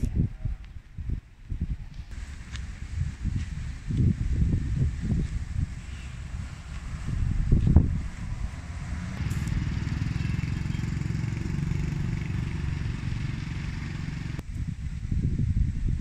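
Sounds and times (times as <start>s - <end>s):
motor engine pulsing: 2.1s - 14.4s.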